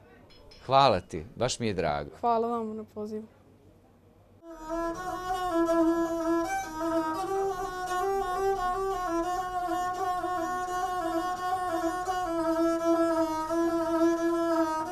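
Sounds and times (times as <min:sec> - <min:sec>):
bowed folk fiddle melody: 0:04.5 - 0:14.9.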